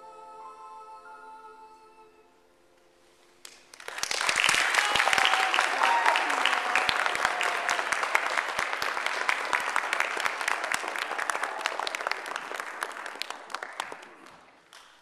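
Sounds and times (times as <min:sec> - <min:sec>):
audience applauding: 0:03.4 - 0:15.0.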